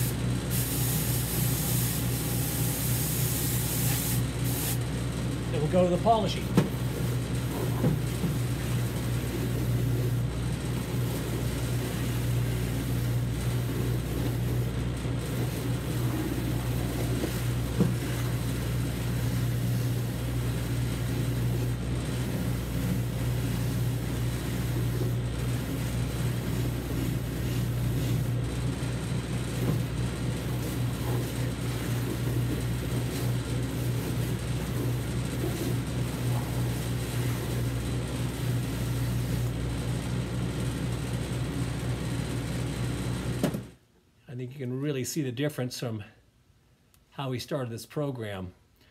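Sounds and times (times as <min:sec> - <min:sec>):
brush hissing on leather: 0:00.0 - 0:04.8, 0:15.3 - 0:28.4, 0:29.5 - 0:37.8
machine motor hum: 0:00.0 - 0:43.7.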